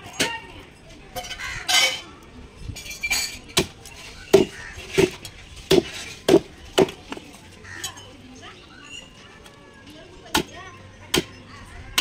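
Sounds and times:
fish handling and scraping: 2.9 - 8.2.

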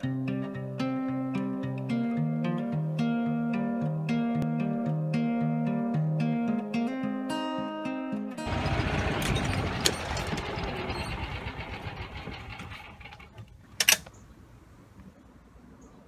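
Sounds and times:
golf cart running: 8.4 - 13.6.

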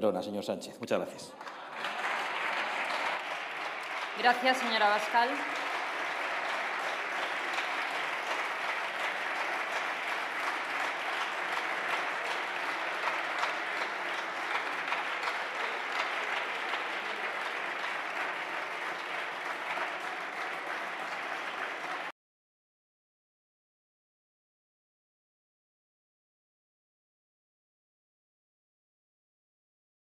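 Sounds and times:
crowd applause: 1.3 - 22.1.

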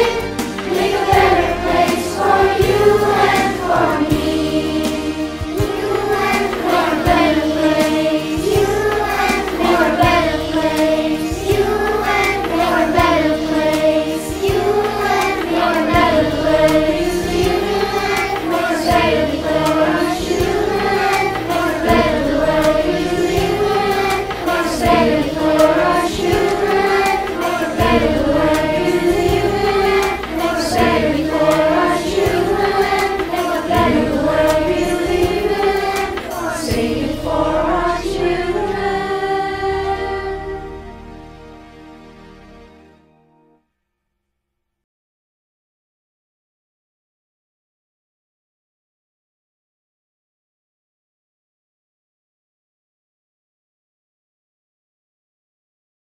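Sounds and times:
children's choir singing: 0.0 - 41.8
backing music with low beat: 0.0 - 42.8.

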